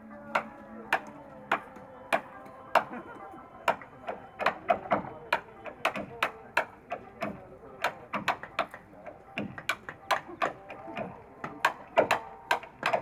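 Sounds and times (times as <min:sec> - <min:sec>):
hammer striking chisel: 0:00.3 - 0:03.0, 0:03.6 - 0:13.0.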